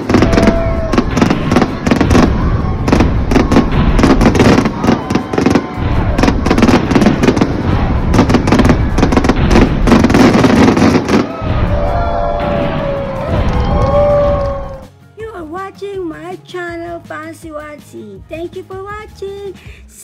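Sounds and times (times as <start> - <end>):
fireworks bursting: 0.0 - 14.9.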